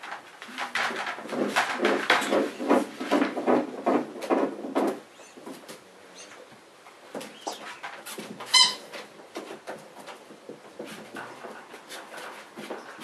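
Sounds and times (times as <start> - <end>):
puppies rustling and scrabbling: 0.0 - 13.0
puppy squeaks: 8.5 - 8.9.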